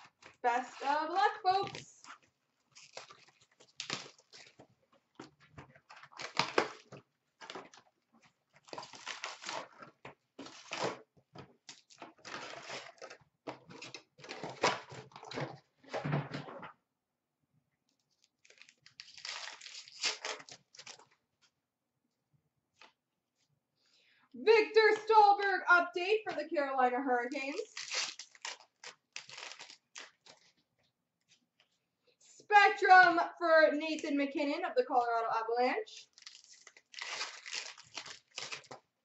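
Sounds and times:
card pack wrappers tearing: 0.1 - 4.6, 5.9 - 7.7, 8.6 - 11.0, 11.7 - 15.2, 18.3 - 21.1, 27.4 - 30.5, 36.0 - 38.8
cards rustling: 27.5 - 30.6, 36.0 - 38.8.

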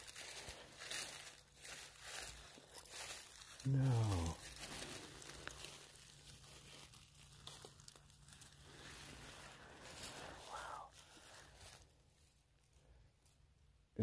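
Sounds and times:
footsteps on dry leaves: 0.0 - 13.4.

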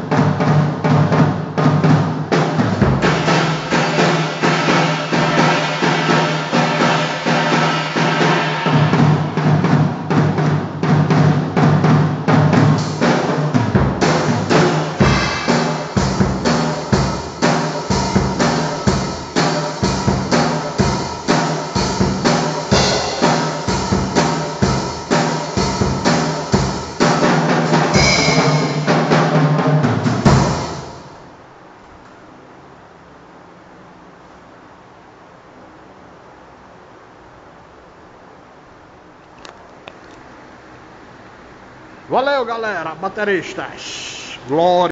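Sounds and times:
drum kit beat: 0.0 - 31.2.

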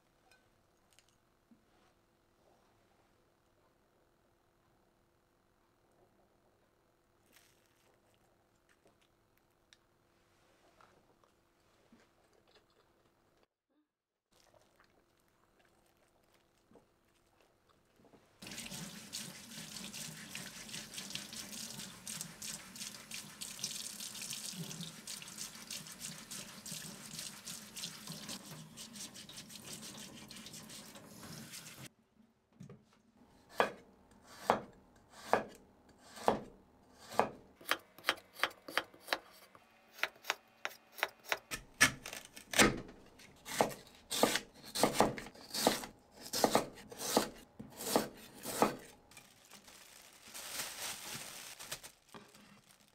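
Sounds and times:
knife chopping on cutting board: 33.5 - 39.4, 43.5 - 48.9.

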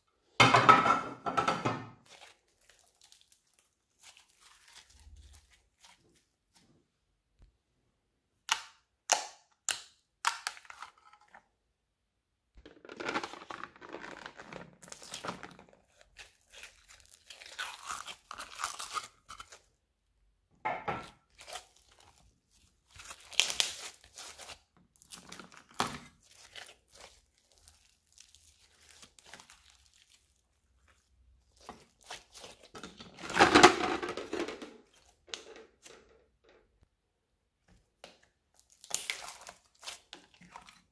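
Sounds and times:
slime crackling and popping: 22.8 - 32.7, 38.6 - 40.6.

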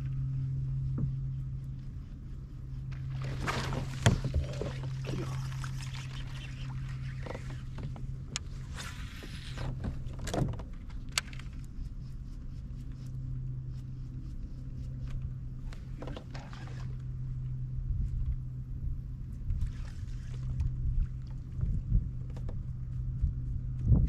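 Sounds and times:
steady low hum: 0.0 - 24.0
fishing line hissing off reel: 4.5 - 7.7.

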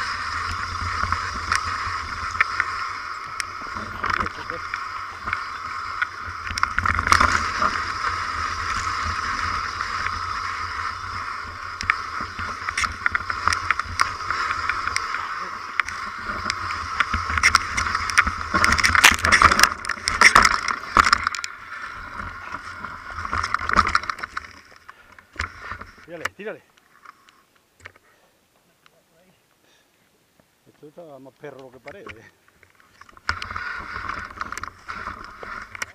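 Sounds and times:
bike rattling over bumps: 0.0 - 26.6, 31.6 - 35.9
mountain bike buzzing as it coasts: 0.0 - 28.0, 31.6 - 35.9.

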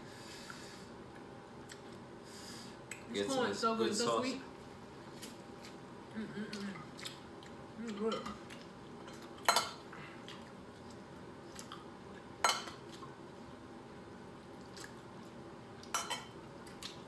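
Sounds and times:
forks clinking against plates: 12.4 - 12.8, 15.9 - 16.3.

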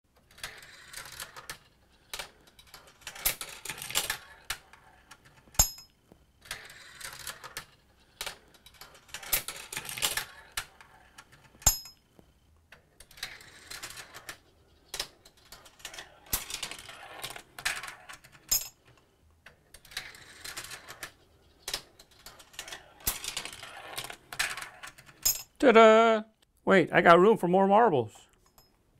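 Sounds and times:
marbles rattling through plastic run: 0.2 - 5.4, 6.4 - 11.5, 13.0 - 14.4, 15.0 - 18.5, 19.8 - 25.2.

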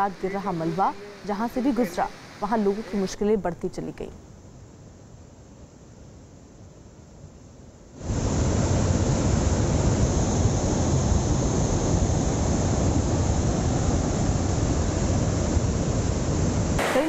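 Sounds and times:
river water rushing: 0.0 - 3.1.

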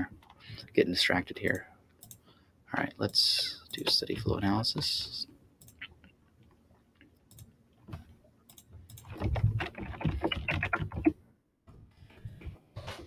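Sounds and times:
typing on computer keyboard: 8.5 - 11.2.

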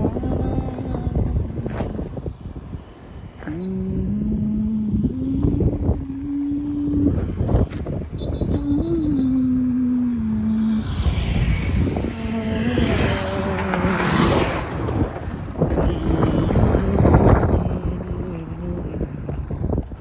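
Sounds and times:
motor vehicle passing: 0.0 - 20.0
wind buffeting microphone: 0.0 - 20.0.

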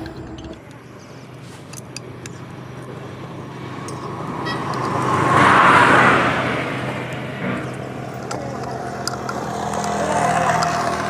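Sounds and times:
low steady hum: 0.0 - 4.8
road vehicle passing by: 0.0 - 11.0.

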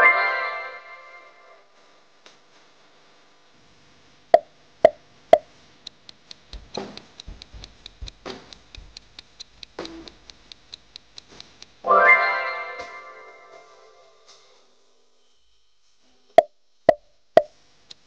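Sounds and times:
fast clock ticking: 4.8 - 11.8
quick pops: 5.9 - 11.8.

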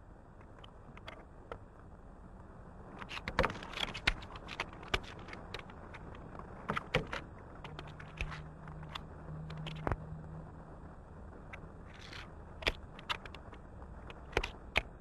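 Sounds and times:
low steady hum: 0.0 - 15.0
playing cards clicking on table: 3.0 - 6.1, 6.7 - 10.0, 14.2 - 14.9.

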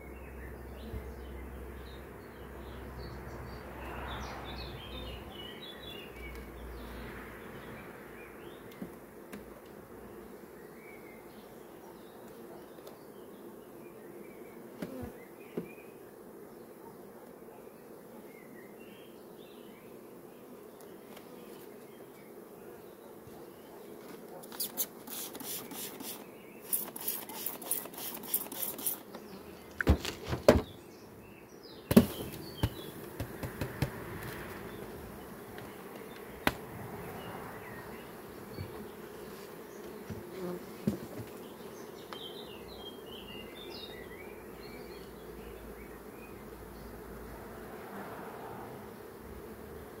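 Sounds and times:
bees buzzing: 0.0 - 50.0
clatters and sharp knocks: 31.9 - 34.4.

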